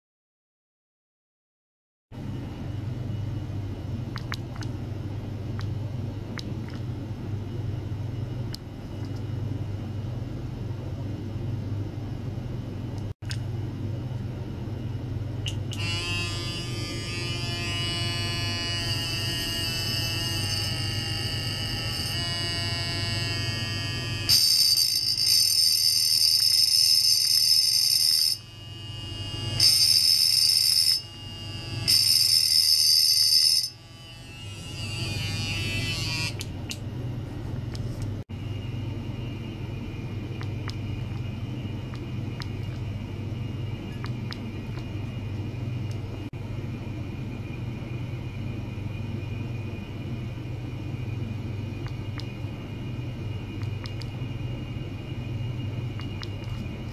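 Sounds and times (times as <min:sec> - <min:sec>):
low steady hum: 0:02.2 - 0:56.9
electric toothbrush buzzing: 0:15.7 - 0:36.5.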